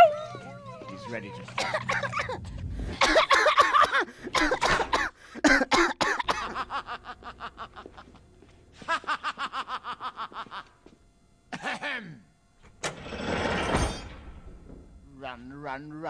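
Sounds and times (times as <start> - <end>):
cartoon voice coughing: 1.5 - 2.4, 3.0 - 6.6, 11.6 - 12.1.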